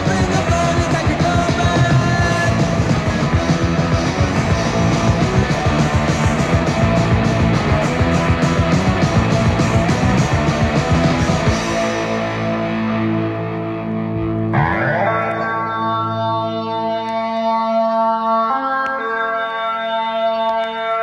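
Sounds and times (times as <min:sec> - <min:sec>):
driving drum beat: 0:00.0 - 0:13.4
distorted electric guitar: 0:00.0 - 0:21.0.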